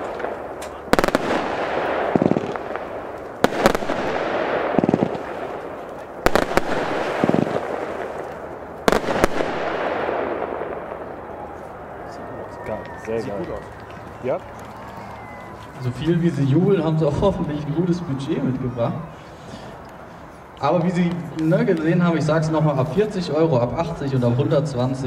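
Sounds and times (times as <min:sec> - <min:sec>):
firework bang: 0:00.0 - 0:11.2
firework crackling: 0:00.0 - 0:12.1.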